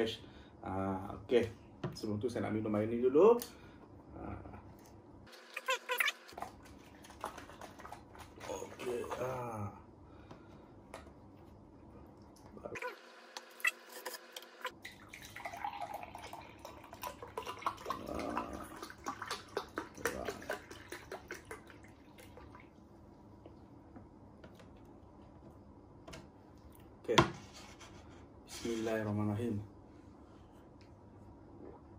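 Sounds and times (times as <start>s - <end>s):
milk pouring into a mug: 6.4s - 9.3s, 14.7s - 22.8s.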